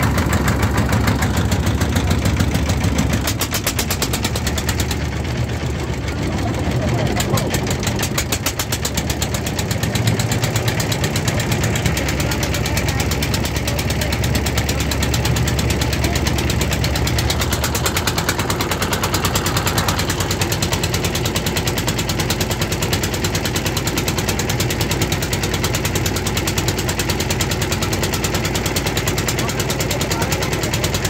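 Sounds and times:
boat engine pulsing: 0.0s - 31.0s.

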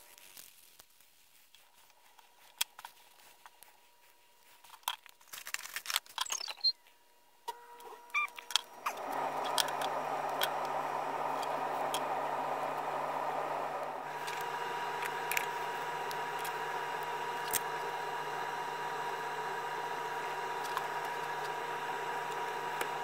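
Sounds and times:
steady hum with hiss: 7.0s - 23.0s.

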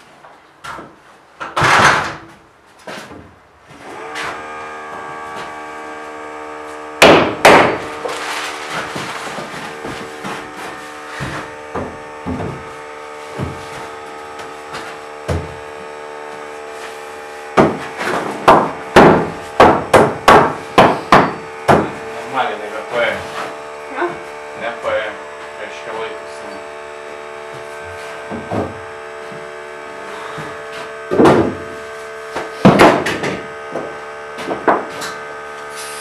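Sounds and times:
steady machine hum: 0.0s - 36.0s
hammer knocking on wood: 7.0s - 7.9s, 11.2s - 12.6s, 17.6s - 22.0s, 31.1s - 31.7s, 32.6s - 34.9s.

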